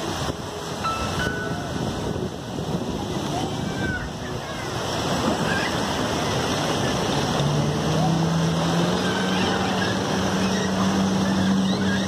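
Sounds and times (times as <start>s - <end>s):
motorboat engine humming: 0.0s - 12.0s
water lapping: 0.0s - 12.0s
wind: 0.0s - 12.0s
distant voices: 1.1s - 12.0s.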